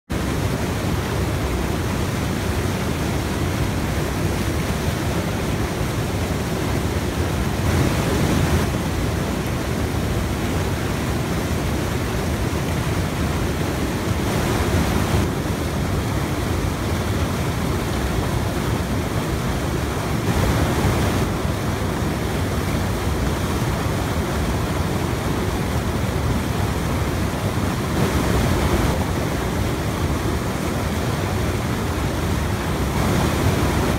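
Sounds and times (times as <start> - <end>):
river water rushing over rocks: 0.1 - 33.9.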